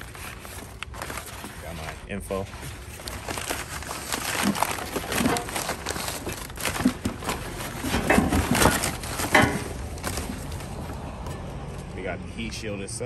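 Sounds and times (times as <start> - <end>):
packing paper crackling: 0.0 - 11.2.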